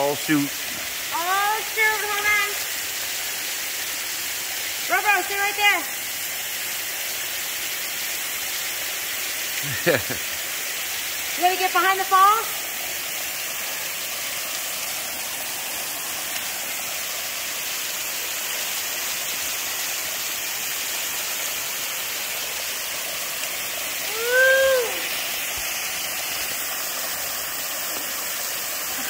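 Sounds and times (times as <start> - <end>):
waterfall pouring: 0.0 - 29.0
person calling out: 9.6 - 10.2, 24.1 - 25.1.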